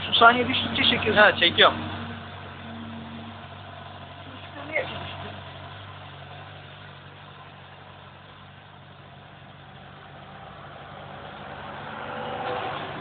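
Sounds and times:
motorcycle engine idling: 0.0 - 11.4.

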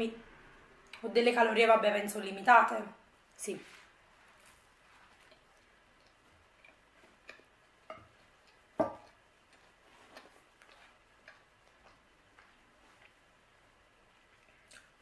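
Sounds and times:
quiet chewing with mouth clicks: 4.2 - 15.0.

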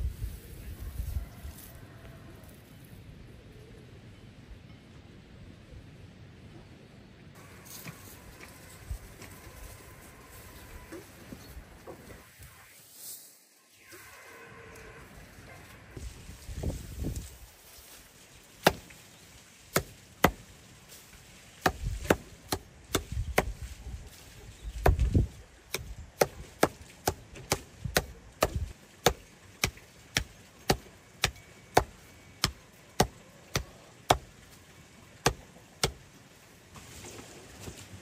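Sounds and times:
hatchet chopping straw on wood: 18.6 - 19.0, 19.7 - 20.5, 21.6 - 23.7, 24.8 - 34.4, 35.2 - 36.0.

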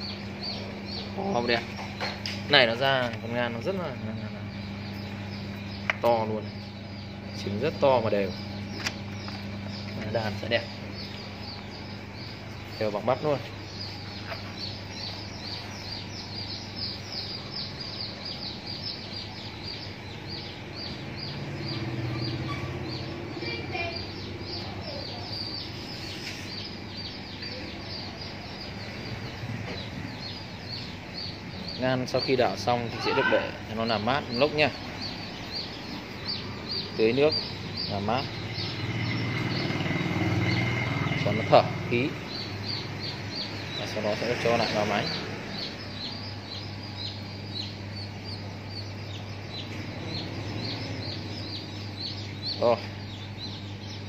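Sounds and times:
low steady hum: 0.0 - 39.6
small birds peeping: 0.0 - 54.0.

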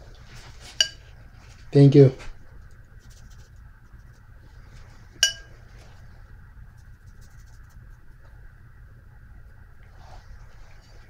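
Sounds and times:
faint steady hum: 0.0 - 11.0
short ringing clink: 5.2 - 5.5.

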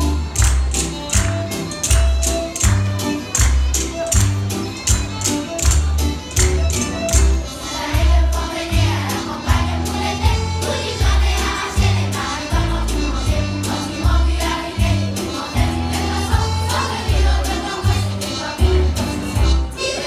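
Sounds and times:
musical accompaniment with bass: 0.0 - 20.0
children's choir singing: 7.3 - 20.0.

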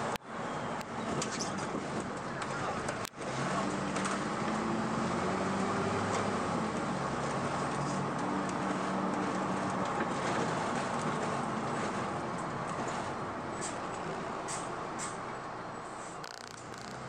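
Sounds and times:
bus diesel engine pulling: 0.0 - 17.0
road and tyre noise: 0.0 - 17.0.

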